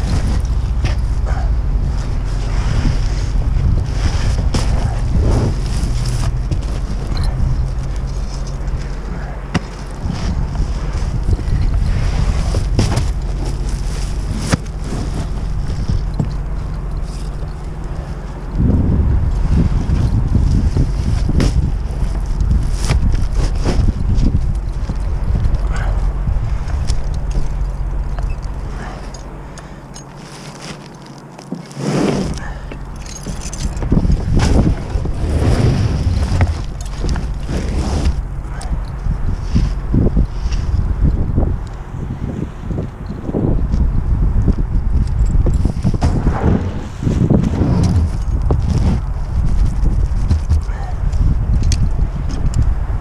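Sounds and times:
wind buffeting microphone: 0:00.0 - 0:30.0, 0:32.2 - 0:53.0
shingles scraping on roof: 0:02.0 - 0:17.4, 0:30.0 - 0:38.4.

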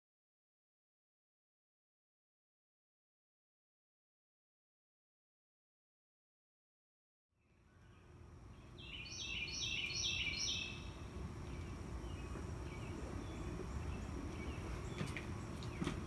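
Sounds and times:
wren singing: 0:07.4 - 0:16.0
low background rumble: 0:07.5 - 0:16.0.

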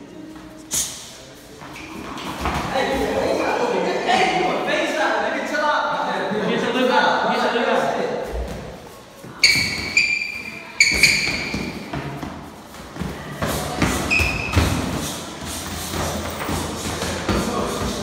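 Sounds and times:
sharp high-pitched squeaks: 0:09.4 - 0:11.9, 0:14.1 - 0:14.6.

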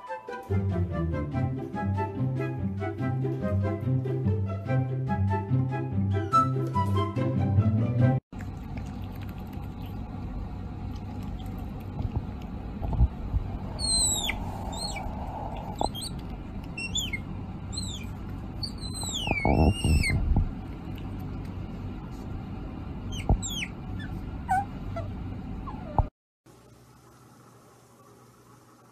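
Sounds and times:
otter squeaking: 0:13.0 - 0:20.4, 0:23.1 - 0:26.1.

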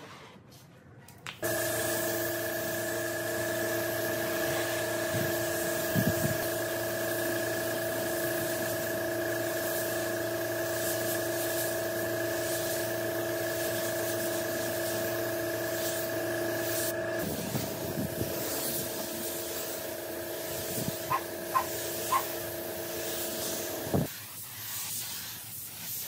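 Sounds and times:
machine hum: 0:01.4 - 0:24.1
spray gun hissing: 0:01.4 - 0:26.0.

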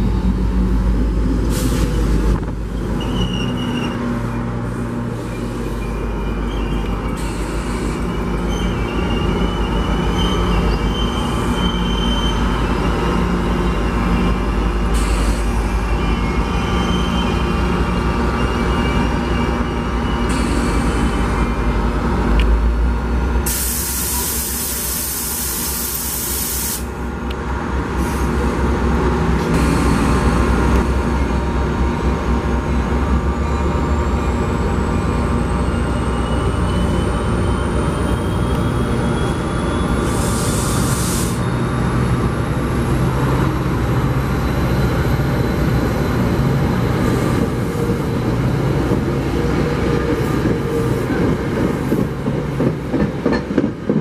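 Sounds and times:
train wheels rumbling on rail: 0:00.0 - 0:54.0
wheel squeal: 0:02.7 - 0:04.4, 0:05.2 - 0:21.5
loud hiss: 0:23.5 - 0:27.0.

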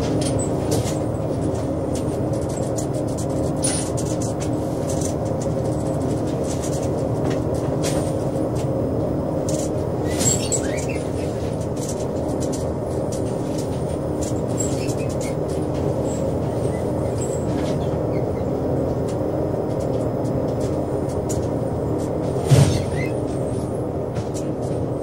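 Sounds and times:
boat engine drone: 0:00.0 - 0:25.0
light clicks and rattles: 0:09.4 - 0:16.4, 0:18.8 - 0:22.4.

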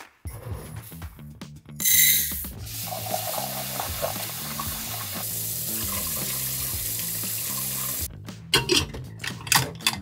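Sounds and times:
tap water running into steel bowl: 0:02.6 - 0:08.1.

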